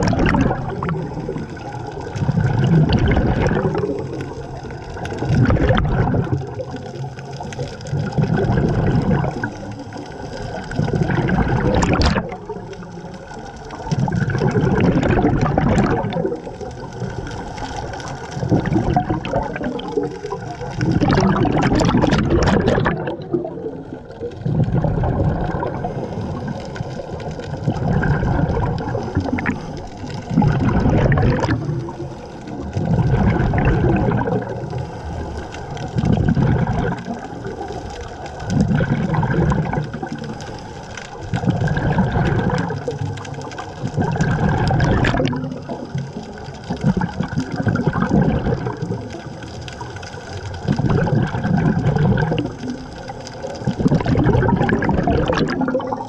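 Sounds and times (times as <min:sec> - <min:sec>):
diver exhaling bubbles underwater: 0:00.0 - 0:56.0.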